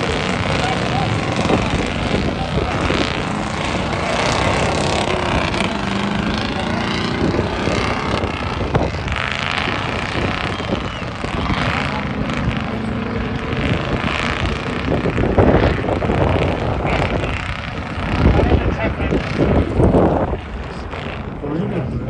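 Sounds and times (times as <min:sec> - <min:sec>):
truck engine running under load: 0:00.0 - 0:22.0.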